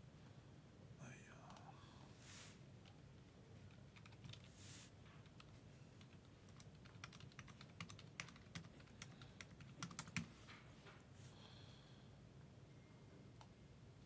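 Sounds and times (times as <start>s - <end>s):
faint keyboard typing: 1.4s - 1.8s, 2.8s - 10.7s.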